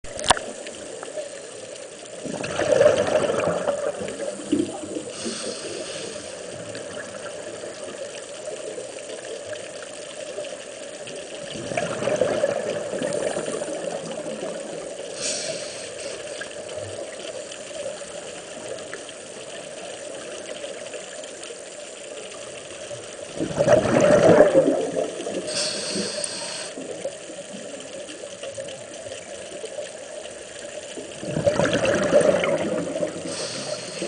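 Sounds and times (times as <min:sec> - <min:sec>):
underwater exhaled air bubbling: 0:00.1 - 0:21.2, 0:22.0 - 0:34.0
regulator hiss on inhale: 0:04.2 - 0:06.8, 0:15.0 - 0:17.6, 0:25.3 - 0:27.1, 0:33.2 - 0:34.0.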